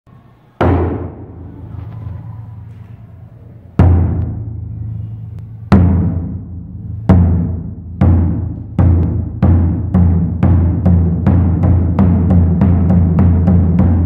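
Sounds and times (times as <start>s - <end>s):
large drum booming: 0.6s - 2.7s, 3.8s - 14.0s.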